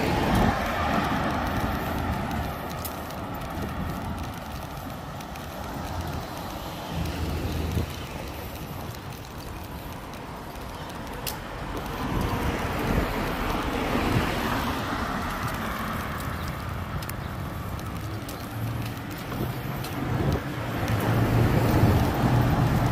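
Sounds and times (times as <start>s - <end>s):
city road traffic rumble: 0.0s - 22.9s
vehicle passing: 0.0s - 22.9s
sharp tick: 1.2s - 12.5s, 15.2s - 21.2s.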